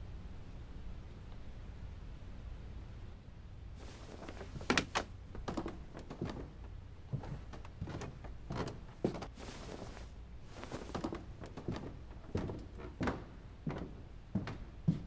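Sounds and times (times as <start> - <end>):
fabric rustling: 3.8 - 13.9.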